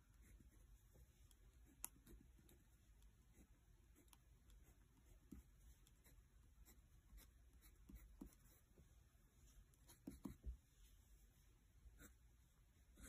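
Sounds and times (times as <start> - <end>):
crayon scratching on paper: 9.9 - 10.4.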